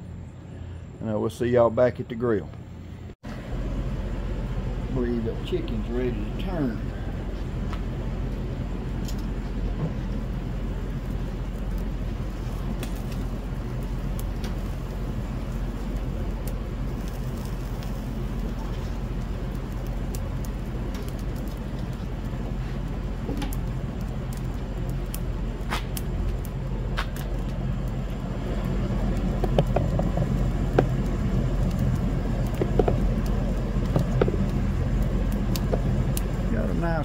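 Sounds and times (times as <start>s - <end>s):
faint grill hiss: 0.0s - 37.0s
steady low rumble: 0.0s - 37.0s
sharp clicks and pops: 29.1s - 34.6s.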